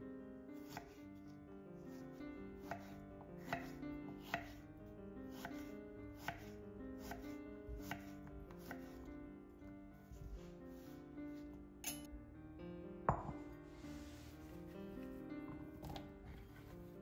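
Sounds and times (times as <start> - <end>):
soft background music: 0.0 - 17.0
knife slicing pears: 0.6 - 1.0, 2.6 - 4.6, 5.3 - 9.0
knife knocking on wooden board: 13.1 - 13.5.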